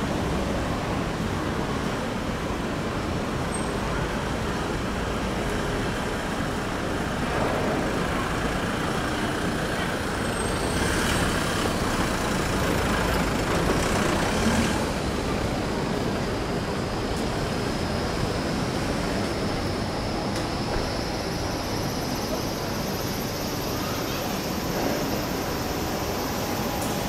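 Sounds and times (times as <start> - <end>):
road traffic noise: 0.0 - 27.0
vehicles passing: 3.9 - 17.6.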